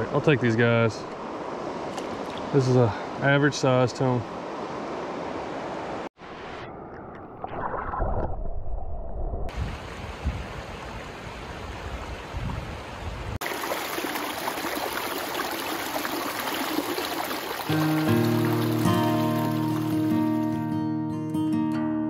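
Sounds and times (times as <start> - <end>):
river water splashing over rocks: 13.4 - 20.6.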